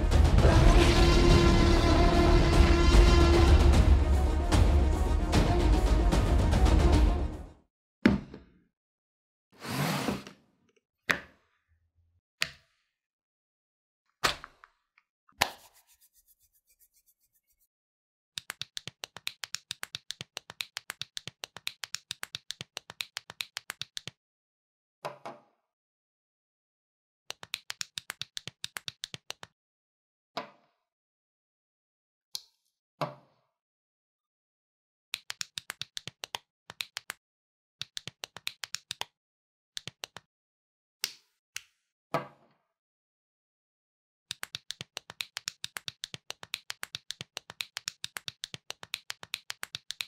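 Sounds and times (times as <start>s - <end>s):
plastic bricks snapping together: 14.2s - 14.8s.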